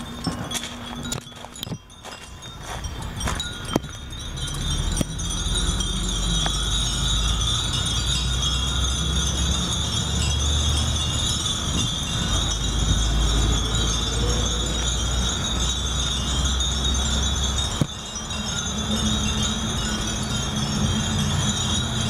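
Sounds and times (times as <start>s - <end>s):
wind chimes tinkling: 0.0s - 22.0s.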